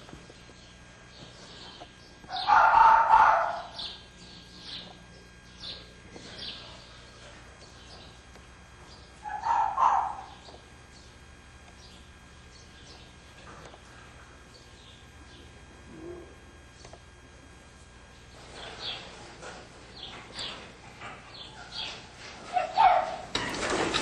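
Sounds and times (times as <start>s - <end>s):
foxes crying loudly: 2.3s - 4.0s, 9.2s - 10.4s, 22.5s - 23.2s.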